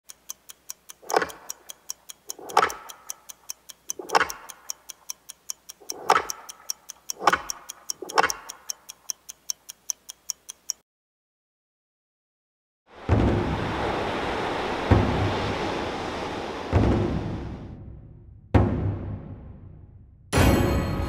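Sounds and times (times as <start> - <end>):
fast clock-like ticking: 0.0 - 10.8.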